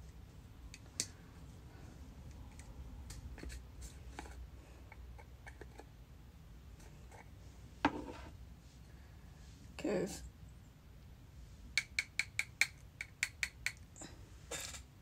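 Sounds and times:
low steady hum: 0.0 - 11.9.

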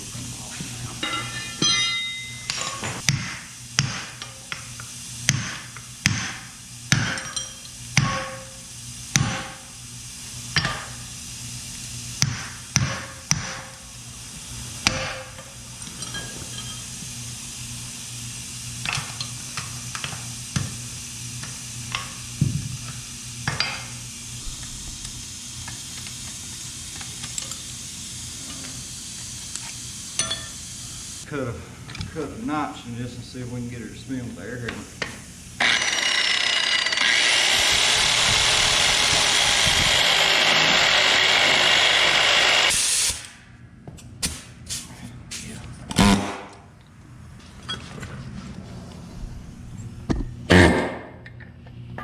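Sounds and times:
steady low hum: 0.0 - 36.0, 43.2 - 52.0
clinks of tools and parts: 1.0 - 3.0, 7.2 - 7.8, 15.4 - 16.9, 29.6 - 30.6.

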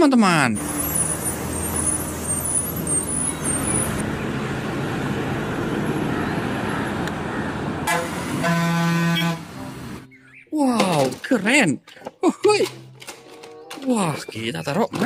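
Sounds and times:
bus driving past: 0.6 - 10.2
small birds chirping: 0.8 - 4.3, 10.1 - 10.8, 14.0 - 15.0.

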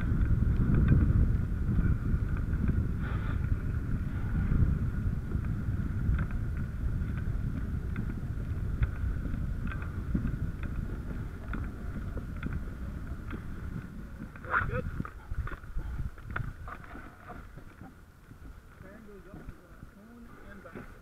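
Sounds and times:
wind noise on microphone: 0.0 - 21.0.

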